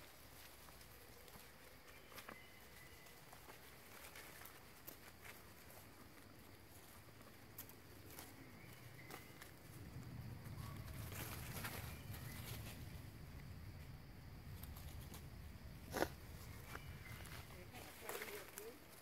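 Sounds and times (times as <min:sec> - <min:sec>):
rustles of dry leaf litter: 0:00.0 - 0:13.5, 0:14.5 - 0:19.0.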